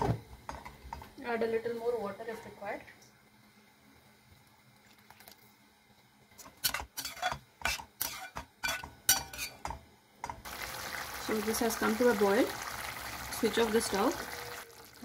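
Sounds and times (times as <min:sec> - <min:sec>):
spatula scraping metal pan: 0:06.5 - 0:09.6.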